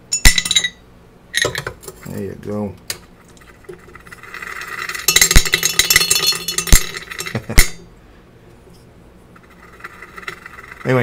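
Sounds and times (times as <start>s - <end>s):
stir bar rattling in glass beaker: 4.0s - 7.8s.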